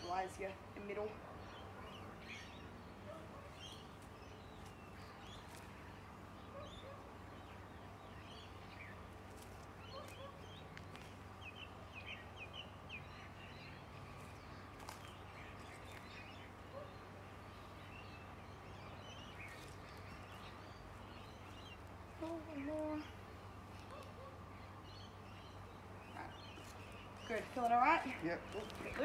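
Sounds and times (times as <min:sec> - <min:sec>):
birds chirping: 0:00.0 - 0:29.0
low background hum: 0:00.0 - 0:29.0.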